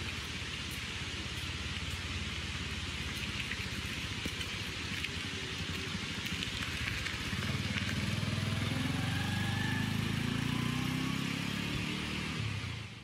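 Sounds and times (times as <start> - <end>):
motorcycle engine pulling away: 7.0 - 13.0.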